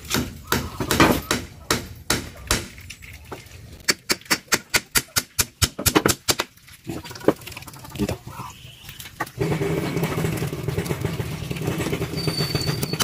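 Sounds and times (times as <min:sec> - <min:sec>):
hammer striking bamboo on wood: 0:00.1 - 0:02.7, 0:03.9 - 0:06.5.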